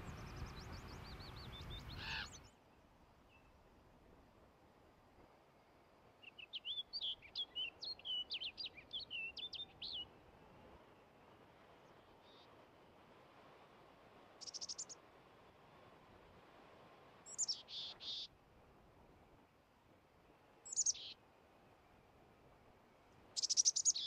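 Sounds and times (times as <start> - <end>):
faint steady hiss: 0.0 - 24.0
bird singing warbling phrase: 17.3 - 18.3, 20.7 - 21.2, 23.4 - 24.0.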